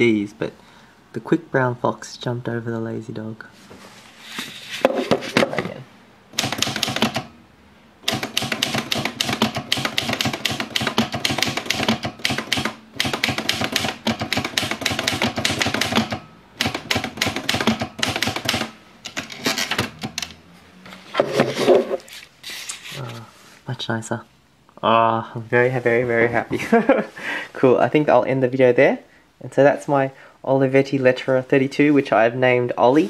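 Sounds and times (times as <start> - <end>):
typewriter key strikes: 6.4 - 7.3, 8.0 - 20.3.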